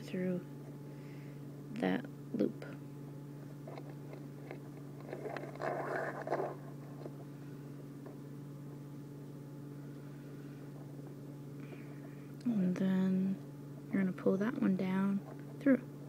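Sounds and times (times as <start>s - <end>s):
steady low hum: 0.0s - 16.0s
cord rustling and rubbing: 3.5s - 7.3s.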